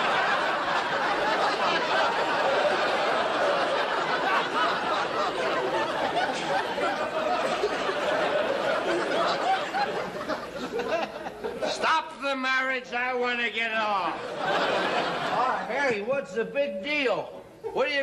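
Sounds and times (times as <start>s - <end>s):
studio audience laughing: 0.0s - 11.9s, 14.1s - 15.7s.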